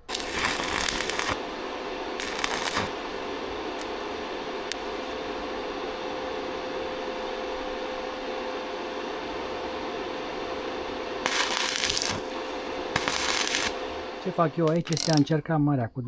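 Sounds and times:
welding arc crackling and sizzling: 0.0 - 15.3
steady hum: 0.0 - 15.9
sharp ticks: 14.7 - 15.3.

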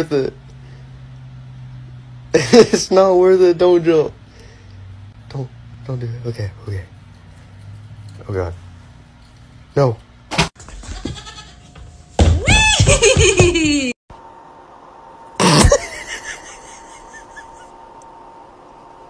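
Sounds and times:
goat kid bleating: 10.7 - 11.7.

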